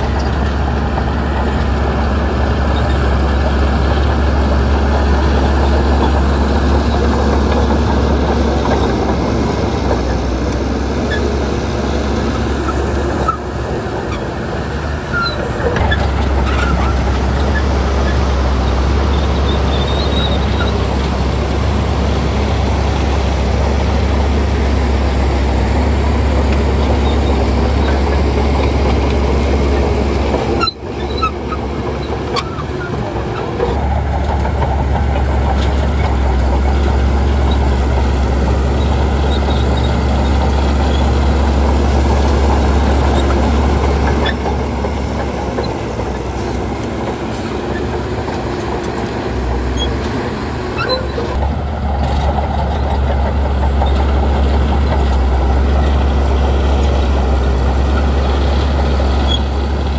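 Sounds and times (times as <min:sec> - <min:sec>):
heavy diesel engine running: 0:00.0 - 0:59.9
light clanks and squeaks: 0:15.0 - 0:20.8, 0:26.5 - 0:50.2, 0:50.8 - 0:57.1.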